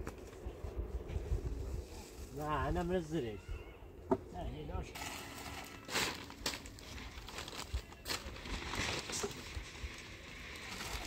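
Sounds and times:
plastic sheeting rustling: 5.0 - 11.0.

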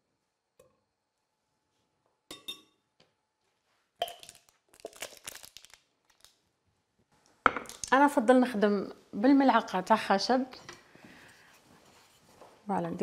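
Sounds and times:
cookware and jars clinking: 2.3 - 2.8.

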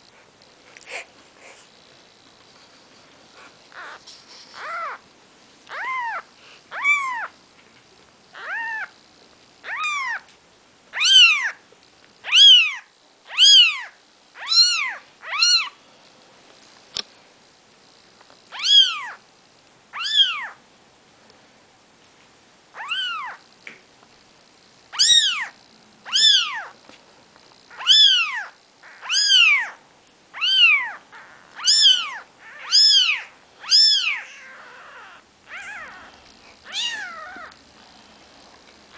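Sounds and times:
kittens mewing: 3.3 - 5.0, 5.7 - 7.4, 8.3 - 9.0, 9.6 - 10.3, 11.0 - 11.6, 12.2 - 15.8, 24.9 - 26.8, 27.7 - 29.8, 30.4 - 37.6.

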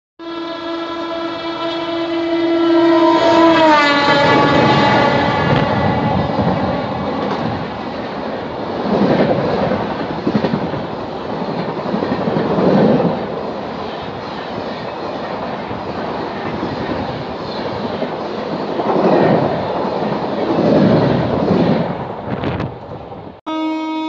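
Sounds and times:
train wheels rumbling on rails: 2.7 - 23.4
clickety-clack of wheels: 7.2 - 21.9.

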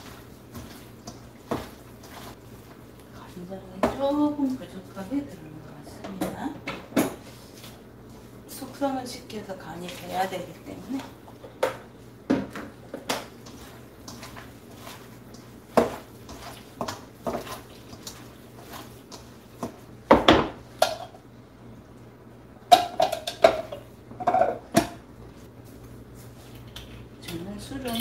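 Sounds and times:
meat mixed by hand in marinade: 0.0 - 6.5, 7.1 - 21.0.

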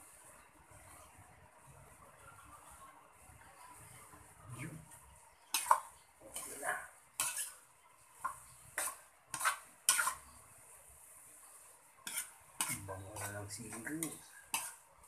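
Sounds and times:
metal spoon scraping wok: 5.5 - 6.6, 7.2 - 10.4, 11.3 - 15.0.

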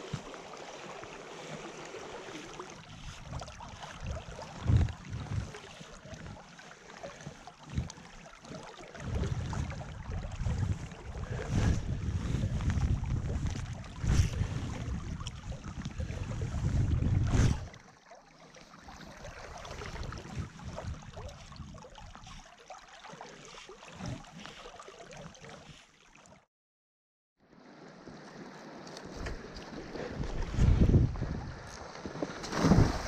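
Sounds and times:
flowing river water: 0.0 - 26.5, 27.4 - 33.0
wind buffeting microphone: 3.0 - 6.4, 9.0 - 17.8, 29.1 - 31.9
rush of wind: 9.0 - 17.7, 29.1 - 31.8.

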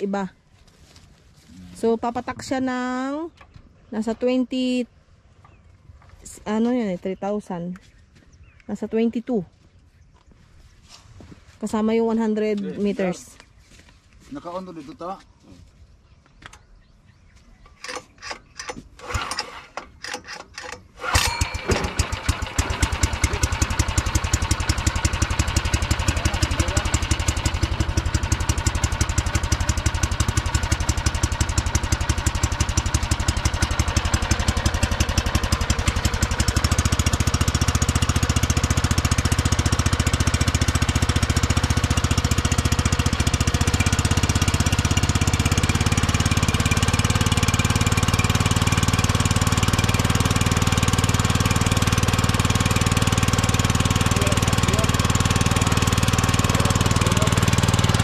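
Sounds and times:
small gasoline engine starting: 17.8 - 58.0.

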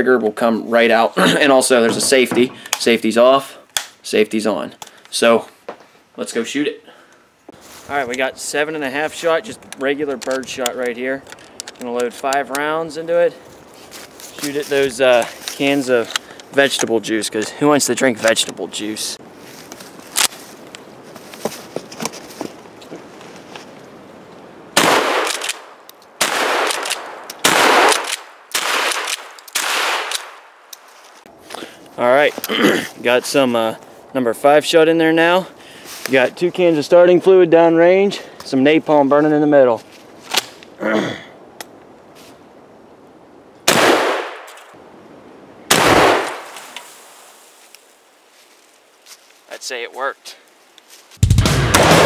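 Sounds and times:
shotgun shots with echo: 24.8 - 30.4, 43.7 - 44.5, 45.7 - 46.5, 51.2 - 52.0.

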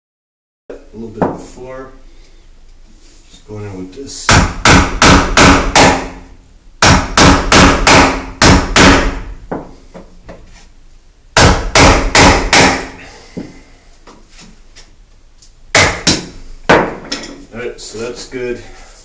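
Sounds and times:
sledgehammer striking chisel: 11.4 - 13.0.

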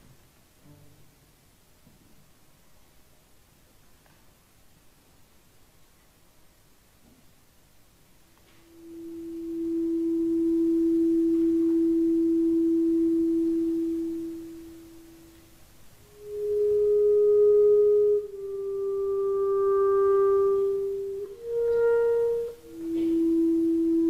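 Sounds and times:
clarinet long notes: 8.5 - 24.0.

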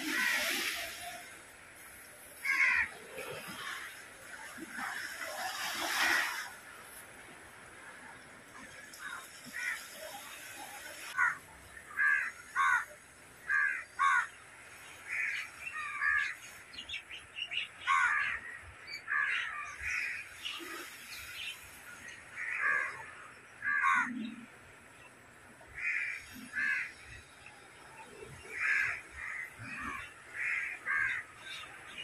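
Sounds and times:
crows cawing: 2.4 - 2.9, 12.0 - 12.9, 13.5 - 14.3, 17.9 - 18.4, 23.6 - 24.1, 25.8 - 27.0, 28.5 - 31.6.

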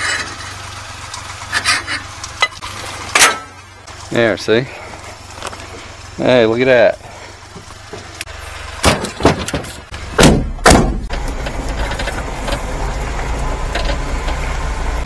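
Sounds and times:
truck engine idling: 0.0 - 15.0
knocks and thuds climbing into cab: 8.8 - 12.2.

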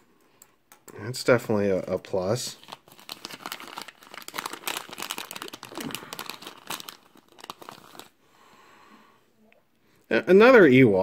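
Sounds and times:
foil packet crinkling: 2.2 - 8.2.

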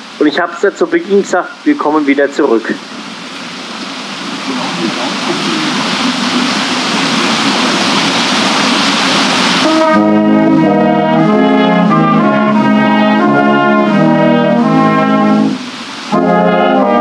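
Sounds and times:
rushing water: 0.0 - 17.0
brass ensemble playing a hymn: 9.5 - 17.0.

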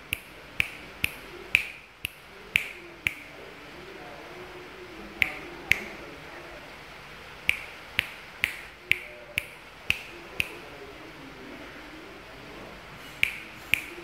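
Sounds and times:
fingers snapping: 5.2 - 5.9, 7.5 - 10.6, 13.2 - 14.0.

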